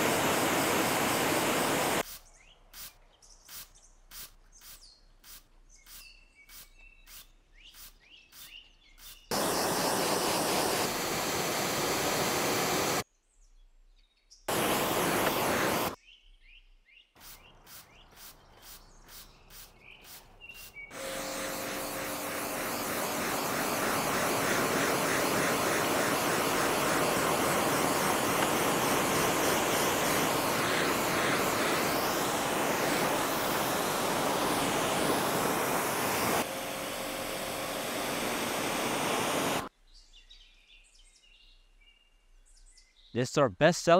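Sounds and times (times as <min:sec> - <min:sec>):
pressure washer jet hissing: 0:00.0 - 0:02.0, 0:09.3 - 0:13.0, 0:14.5 - 0:16.0, 0:17.2 - 0:39.7
loud hissing water spray: 0:00.0 - 0:02.2, 0:09.3 - 0:13.0, 0:14.5 - 0:16.0, 0:17.2 - 0:39.7
birds chirping faintly: 0:11.8 - 0:36.4
spray bottle squirting: 0:17.2 - 0:20.8, 0:22.0 - 0:36.5.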